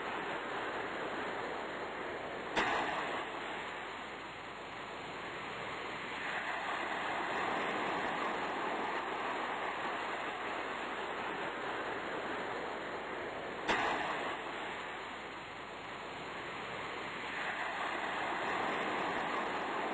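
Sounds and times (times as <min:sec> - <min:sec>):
sea surf hissing: 0:05.1 - 0:19.9.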